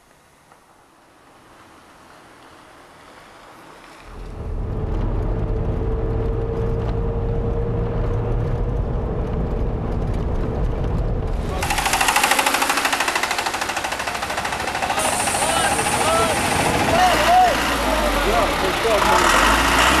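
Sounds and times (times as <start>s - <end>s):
vehicle engine and road rumble: 0.0s - 20.0s
loud rapid rattle: 10.1s - 17.8s
faint wind noise: 13.8s - 19.0s.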